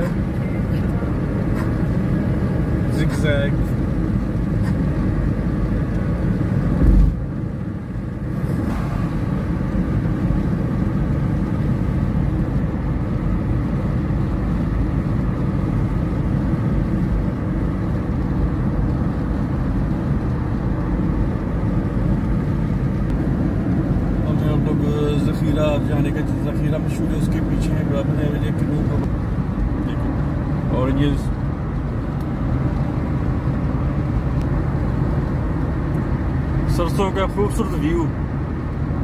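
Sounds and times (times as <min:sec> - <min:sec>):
car road and engine noise: 0:00.0 - 0:39.0
low thump: 0:06.8 - 0:07.2.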